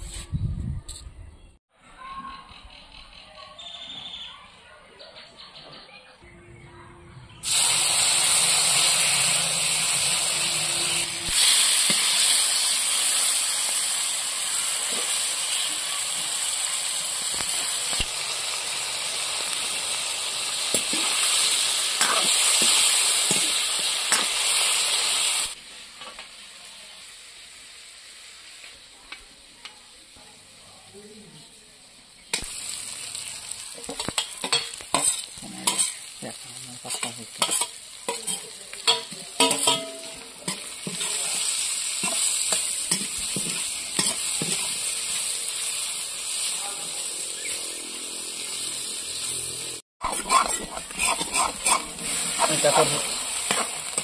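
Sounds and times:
fish frying in hot oil: 7.4 - 29.0, 32.2 - 54.0
spatula scraping a wok: 7.5 - 13.4, 20.6 - 24.7, 33.8 - 47.8, 50.0 - 54.0.

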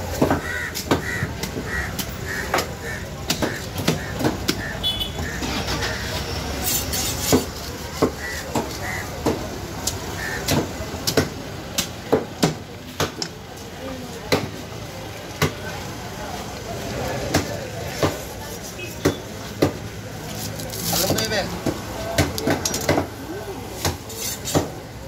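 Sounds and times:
street traffic rumble: 0.0 - 25.0
crow-like calls: 0.3 - 6.1, 8.1 - 9.3, 10.1 - 10.7
knife scraping fish skin: 6.6 - 8.4, 24.0 - 24.6.

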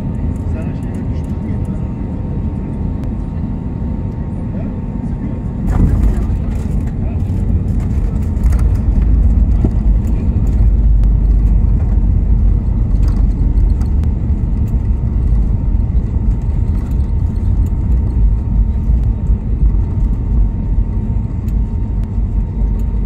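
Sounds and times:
aircraft engines rumbling in cabin: 0.0 - 23.0
faint clicks and rattles: 5.7 - 20.4.

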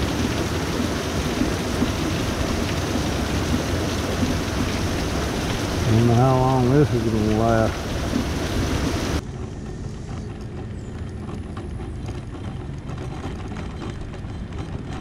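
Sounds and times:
heavy rain pouring: 0.0 - 9.2
mobility scooter motor rumbling: 0.0 - 15.0.

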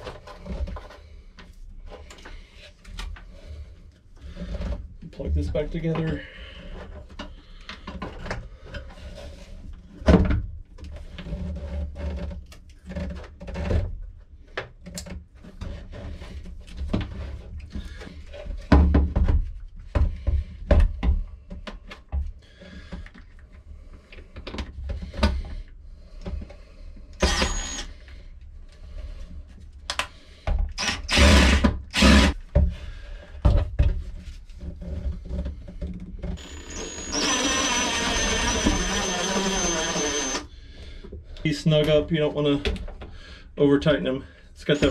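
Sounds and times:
cordless drill whirring: 27.2 - 27.9, 30.8 - 32.4, 36.4 - 40.5.

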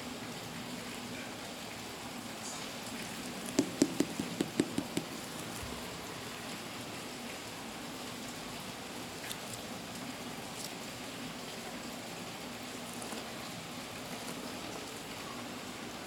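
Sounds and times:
light knocks of sneakers set down: 3.5 - 5.6.

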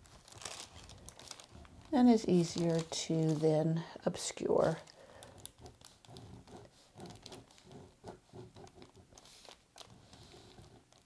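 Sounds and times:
paper rustling: 0.0 - 3.8, 4.6 - 11.0
pen scratching on paper: 5.5 - 10.9.

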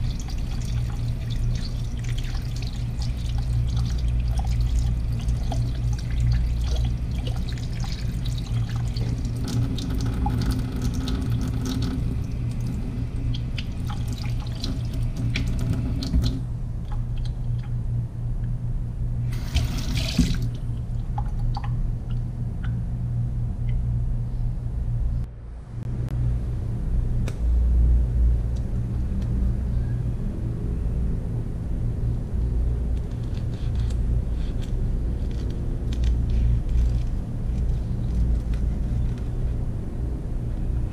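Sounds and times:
tap water running into sink: 0.0 - 16.4, 19.4 - 20.6
steady low hum: 0.0 - 40.9.

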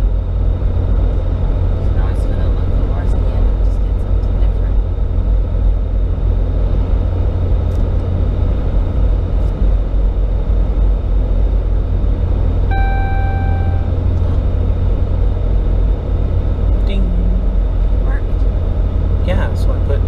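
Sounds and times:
road and drivetrain rumble: 0.0 - 20.0
dashboard chime: 12.7 - 14.0.

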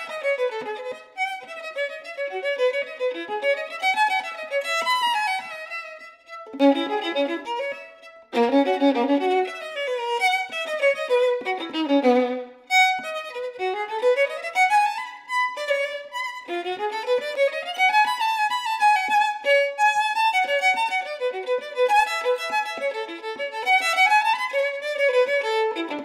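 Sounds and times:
solo violin playing fast runs: 0.0 - 26.0.

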